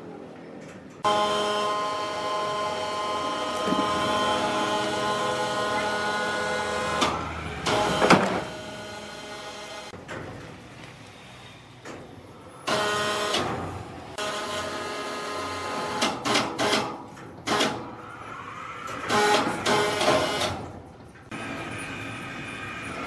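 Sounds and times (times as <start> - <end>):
motor-driven lifting gear whining: 1.0 - 9.9
steady machine hum: 1.0 - 10.0.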